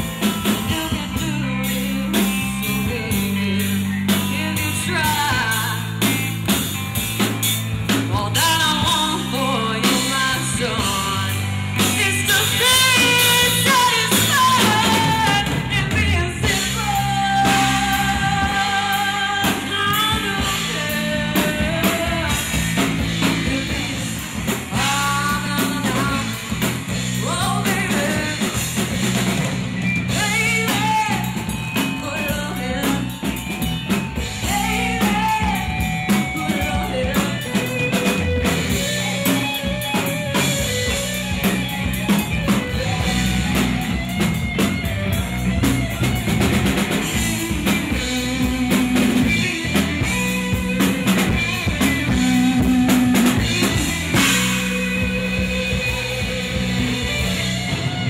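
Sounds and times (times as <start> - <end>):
drum kit: 0.0 - 58.0
electric guitar: 0.0 - 58.0
woman singing: 0.2 - 6.2, 7.9 - 29.2, 30.1 - 44.2.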